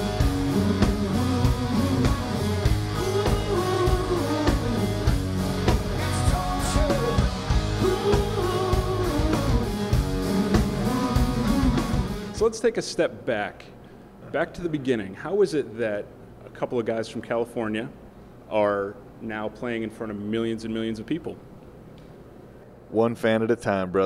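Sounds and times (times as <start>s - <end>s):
man singing: 0.0s - 5.1s, 5.8s - 12.0s
bass guitar: 0.0s - 12.4s
electric guitars: 0.0s - 12.4s
drum kit beat: 0.0s - 12.5s.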